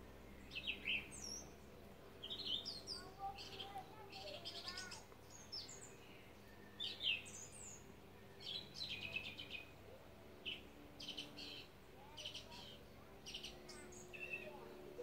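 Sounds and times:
faint low hum: 0.0 - 15.0
birdsong chirps and whistles: 0.1 - 15.0.

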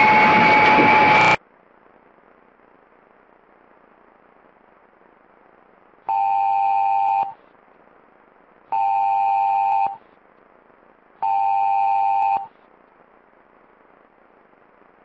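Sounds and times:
faint steady hiss: 0.8 - 15.0
two-tone electronic alert beeps: 8.8 - 10.0, 11.2 - 12.5.

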